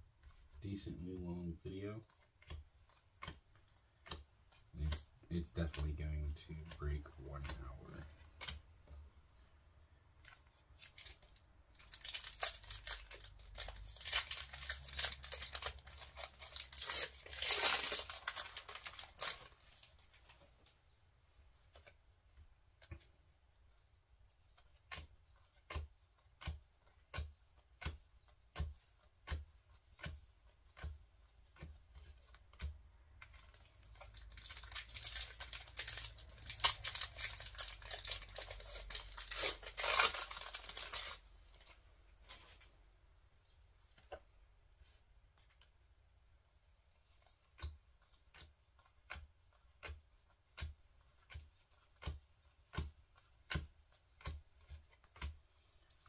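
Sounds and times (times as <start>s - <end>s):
crisp taps of cards flipped: 2.0s - 5.1s, 7.4s - 9.0s, 21.7s - 22.0s, 43.8s - 44.3s, 47.1s - 56.0s
foil wrappers crinkling and tearing: 10.8s - 20.4s, 33.4s - 42.6s.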